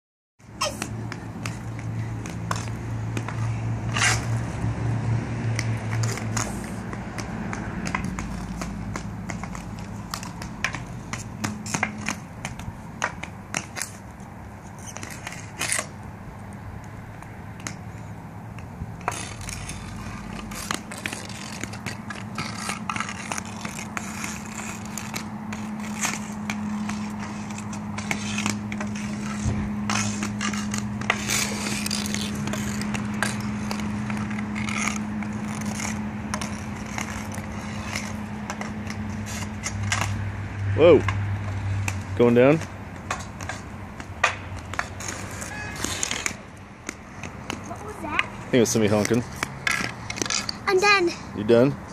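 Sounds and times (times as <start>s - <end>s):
skate wheels rolling on pavement: 0.4s - 51.9s
hockey stick clacking on ball: 5.5s - 14.0s, 18.5s - 40.2s, 42.6s - 50.6s.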